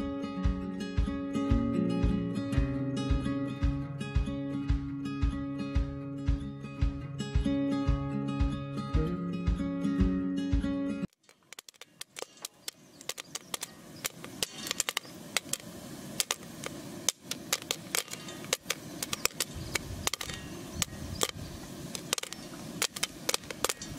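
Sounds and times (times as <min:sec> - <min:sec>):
acoustic guitar music: 0:00.0 - 0:11.2
steady hiss: 0:11.0 - 0:23.9
popcorn popping in a metal pan: 0:11.1 - 0:23.9.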